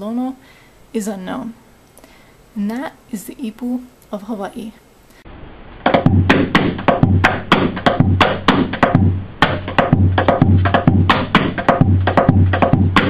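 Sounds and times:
gourd drum strikes: 5.8 - 13.0.

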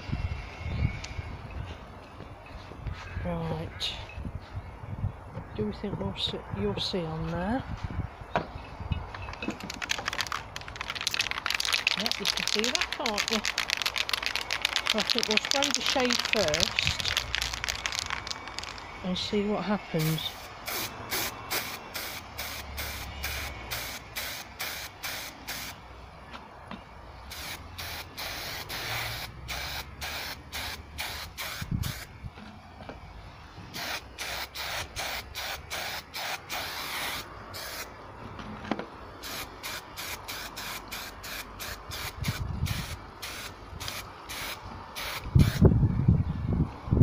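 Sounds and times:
aerosol spray hissing bursts: 20.0 - 25.7, 27.3 - 32.1, 33.8 - 37.9.

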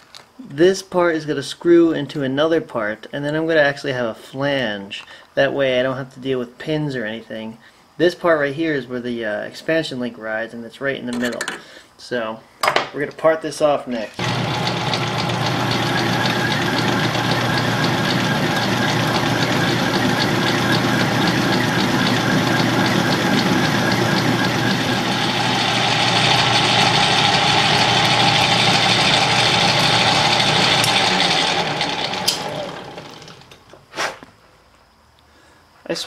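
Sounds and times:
metal lathe cutting steel: 14.2 - 33.4.

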